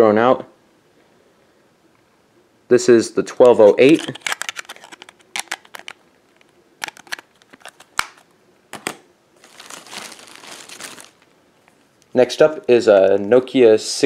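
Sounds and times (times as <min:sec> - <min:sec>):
plastic carrier bag crinkling: 0:03.4 - 0:13.5.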